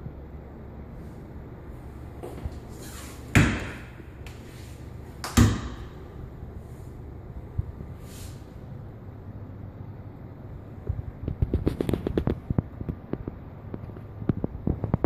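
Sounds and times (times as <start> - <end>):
closet doors knocking shut: 3.3 - 3.9, 5.3 - 5.9.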